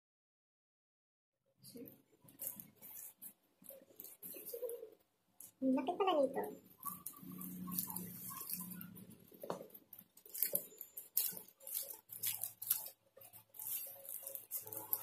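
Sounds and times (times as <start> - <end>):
plastic sleeve rustling: 1.8 - 15.0.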